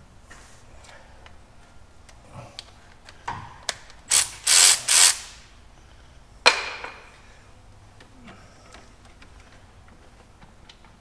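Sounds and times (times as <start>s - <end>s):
cordless ratchet running: 4.1s - 5.5s.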